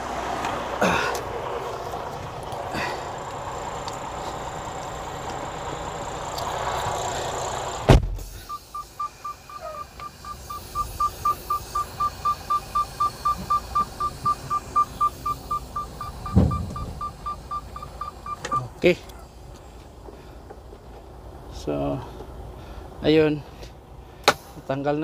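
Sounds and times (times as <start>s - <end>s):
truck engine running: 0.0s - 25.0s
thump: 7.9s - 8.2s, 16.3s - 17.0s
truck door slamming: 7.9s - 8.5s, 16.1s - 17.4s
warning chime beeping: 8.3s - 18.7s.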